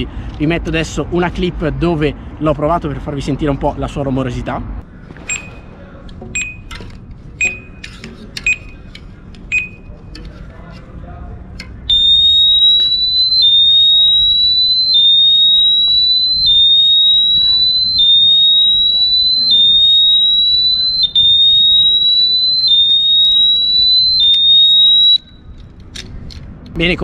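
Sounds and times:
piercing bike lock alarm: 6.4s - 6.7s, 8.4s - 8.8s, 9.5s - 9.9s, 11.9s - 25.6s.

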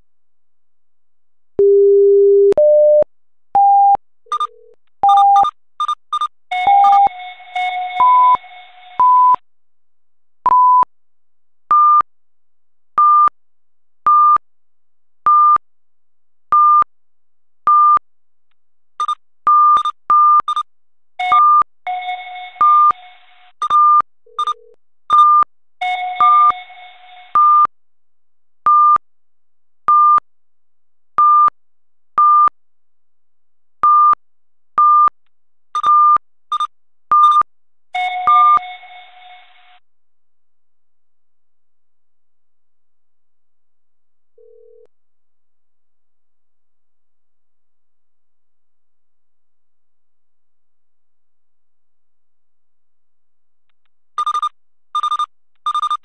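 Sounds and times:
seismograph alert beeps: 24.4s - 25.2s, 54.2s - 56.0s.

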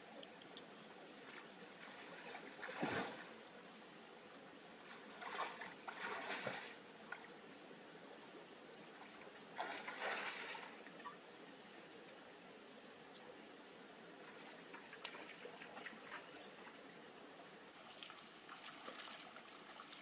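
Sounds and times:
flowing water: 0.0s - 20.0s
water splashing from wading: 1.2s - 3.3s, 4.9s - 7.3s, 9.0s - 10.8s, 14.2s - 16.4s, 17.8s - 20.0s.

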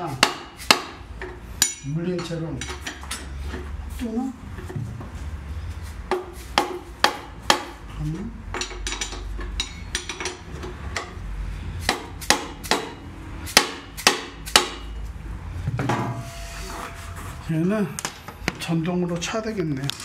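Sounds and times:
hammer striking metal: 0.0s - 3.3s, 8.5s - 10.4s, 11.8s - 15.0s, 15.8s - 17.4s.

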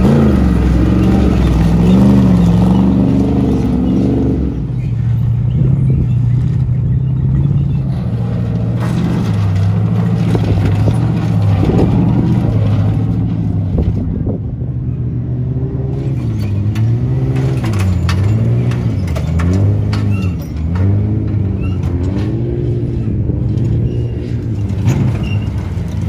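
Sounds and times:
race car engines revving: 0.0s - 26.0s
knocks and clatters: 7.3s - 14.2s, 16.1s - 26.0s.

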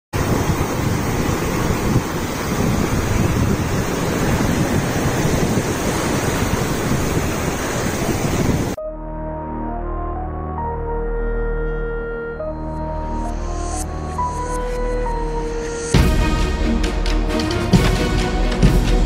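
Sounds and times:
ocean surf breaking on beach: 0.1s - 8.8s
wind buffeting microphone: 0.1s - 8.8s.

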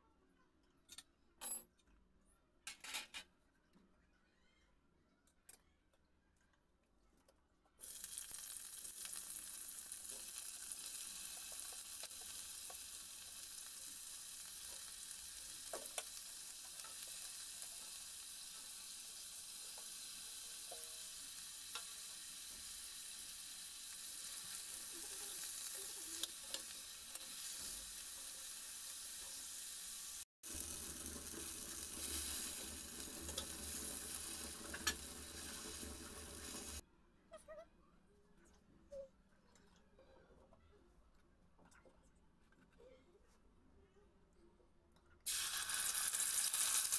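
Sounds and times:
vegetables sizzling in oil: 7.8s - 36.8s, 45.3s - 46.9s.

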